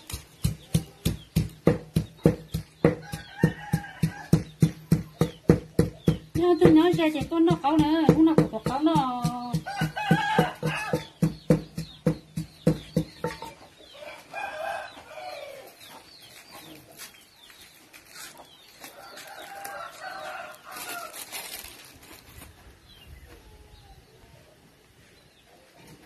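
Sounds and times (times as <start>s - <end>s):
wooden pestle pounding in mortar: 0.0s - 13.6s
rooster crowing: 3.0s - 4.4s, 9.7s - 11.1s, 14.0s - 15.7s, 19.0s - 21.2s.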